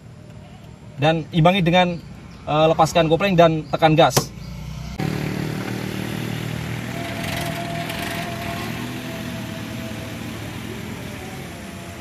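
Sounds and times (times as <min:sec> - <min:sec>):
car engine running: 0:04.2 - 0:12.0.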